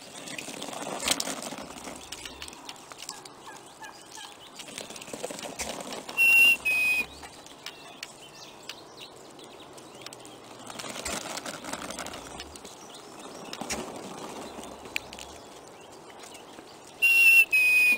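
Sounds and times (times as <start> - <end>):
feathers and wings rustling: 0.0 - 8.2, 9.7 - 17.0
loud two-note whistle: 6.2 - 7.1, 17.0 - 17.9.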